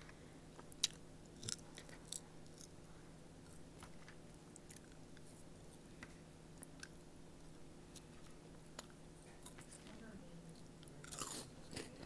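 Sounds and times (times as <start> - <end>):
chewing crunchy snack: 0.6 - 5.9, 6.6 - 7.0, 7.9 - 9.9, 10.8 - 12.0.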